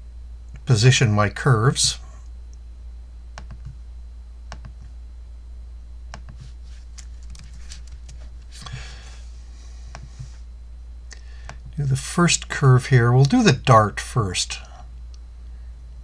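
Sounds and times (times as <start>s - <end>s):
steady low hum: 0.0s - 16.0s
keyboard and mouse clicks: 3.4s - 3.8s, 4.5s - 4.9s, 6.1s - 6.4s.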